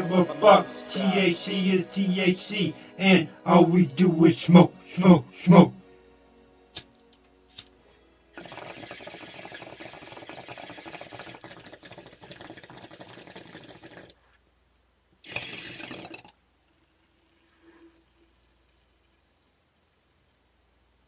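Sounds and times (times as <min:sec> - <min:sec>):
bong water bubbling: 0:08.4 - 0:14.1, 0:15.3 - 0:16.4.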